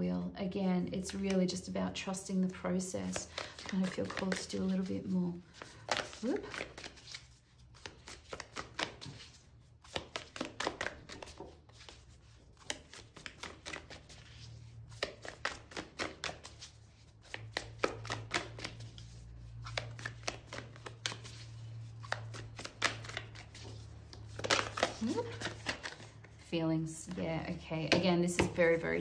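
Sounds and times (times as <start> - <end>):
cards being shuffled: 3.0 - 29.0
cards tapping on table: 27.8 - 28.7.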